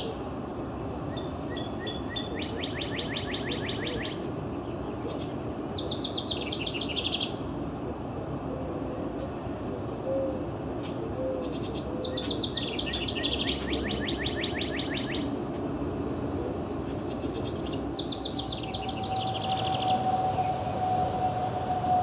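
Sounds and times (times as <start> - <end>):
wren singing trilled phrases: 5.6 - 7.4, 11.4 - 22.0.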